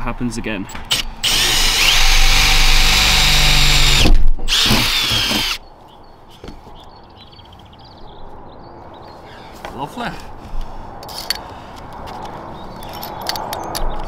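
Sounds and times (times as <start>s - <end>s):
power drill boring metal: 0.9s - 5.6s.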